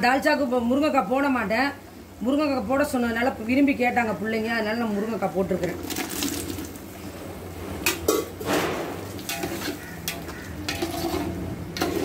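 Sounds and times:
ladle stirring thick gravy: 7.8 - 12.0.

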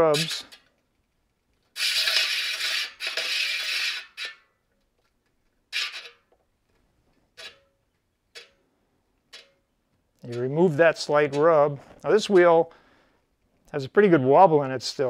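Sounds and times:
bicycle rim scraping: 0.0 - 0.6, 1.7 - 4.6, 5.7 - 6.4, 7.3 - 8.6.

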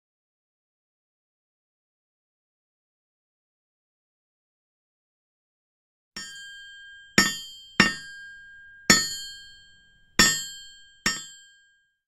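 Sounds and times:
hammer striking anvil: 6.2 - 11.7.

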